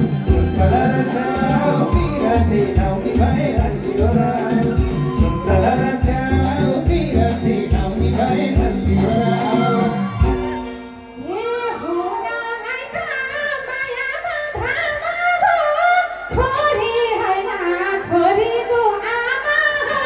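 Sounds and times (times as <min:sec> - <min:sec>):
instrumental music: 0:00.0 - 0:12.0
woman singing into microphone: 0:00.0 - 0:20.0.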